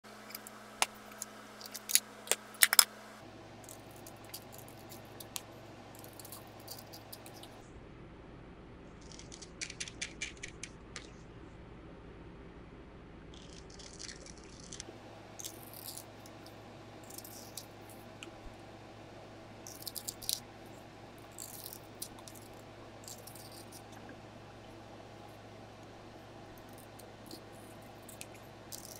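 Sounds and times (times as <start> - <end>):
razor blade shaving pencil: 26.6 - 28.9.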